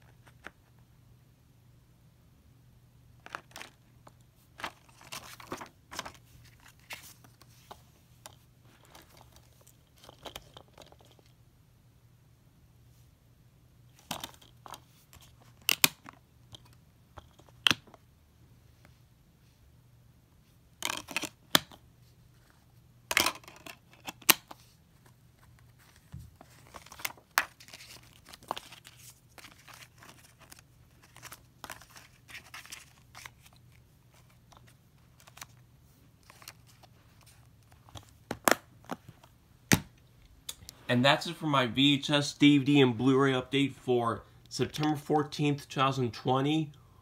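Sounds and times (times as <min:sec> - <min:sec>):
paper rustling: 0:04.5 - 0:11.1, 0:25.0 - 0:35.6, 0:36.2 - 0:38.3.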